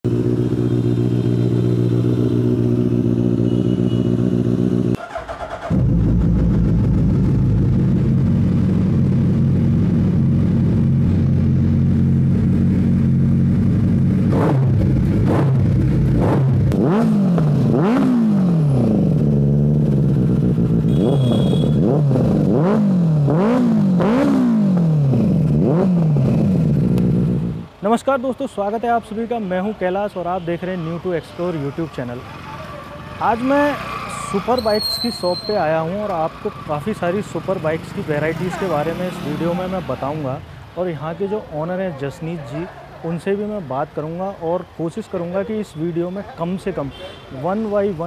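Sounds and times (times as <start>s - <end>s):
motorcycle throttle revving: 0.1s - 27.6s
motorcycle engines idling: 31.7s - 40.4s.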